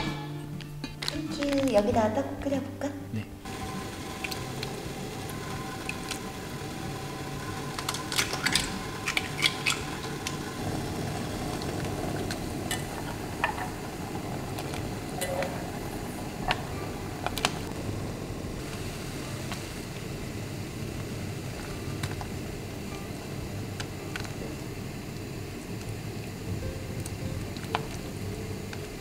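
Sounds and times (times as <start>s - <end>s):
steady kitchen hum: 0.0s - 29.0s
metal utensil scraping a pot: 7.7s - 10.5s.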